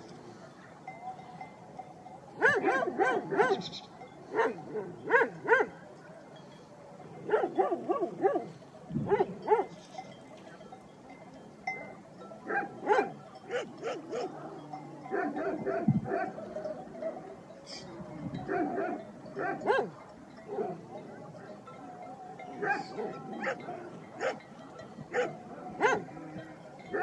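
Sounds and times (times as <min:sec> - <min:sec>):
dogs barking: 0:02.4 - 0:05.8, 0:07.2 - 0:09.8, 0:12.4 - 0:17.3, 0:18.4 - 0:20.9, 0:22.5 - 0:24.5, 0:25.1 - 0:26.1.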